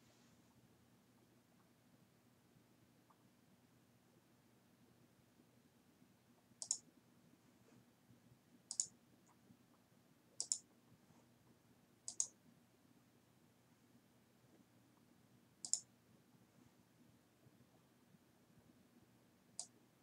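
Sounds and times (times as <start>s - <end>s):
computer mouse clicks: 6.6s - 6.9s, 8.7s - 9.0s, 10.4s - 10.7s, 12.1s - 12.4s, 15.6s - 15.9s, 19.6s - 19.8s.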